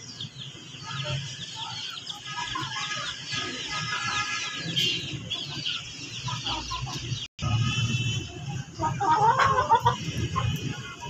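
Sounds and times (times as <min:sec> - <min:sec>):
chickens clucking: 0:00.0 - 0:07.3, 0:08.5 - 0:11.0
high peeping chirps: 0:00.0 - 0:07.3.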